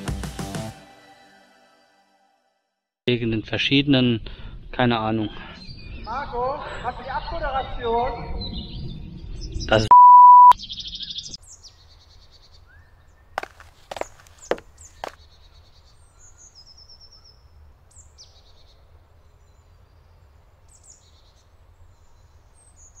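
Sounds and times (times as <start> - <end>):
birds chirping and calling: 5.2 - 9.9.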